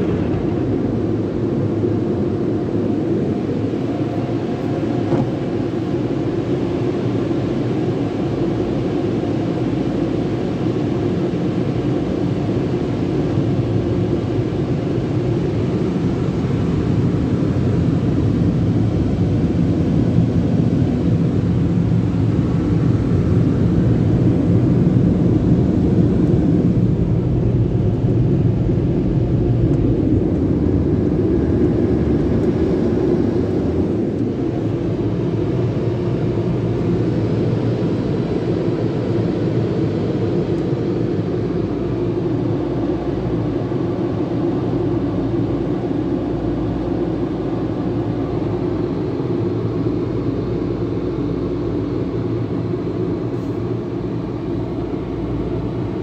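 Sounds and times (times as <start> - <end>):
dryer blowers roaring: 0.0 - 56.0.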